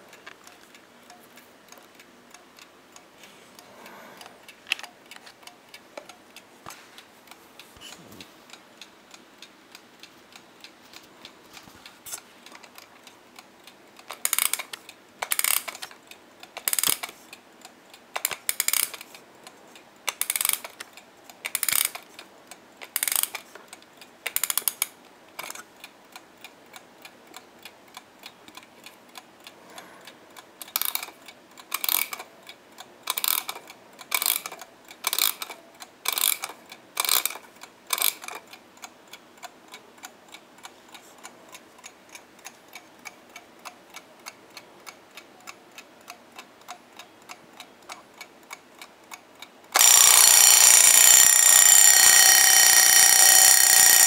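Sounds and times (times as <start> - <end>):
ratcheting clicks of winding key: 14.0 - 17.4, 18.2 - 19.2, 20.1 - 20.8, 21.4 - 22.2, 22.8 - 23.5, 24.2 - 25.6, 30.6 - 32.3, 33.0 - 38.5, 49.7 - 54.0
alarm clock ticking: 49.8 - 54.0.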